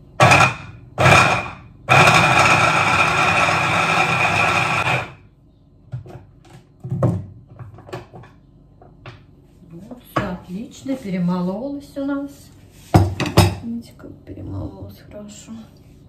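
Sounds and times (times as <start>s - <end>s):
immersion blender whining: 0.2s - 5.2s.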